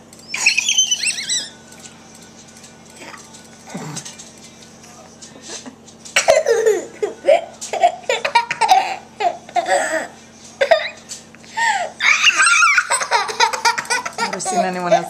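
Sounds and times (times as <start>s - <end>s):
young child giggling and squealing: 0.3s - 1.6s, 12.0s - 14.7s.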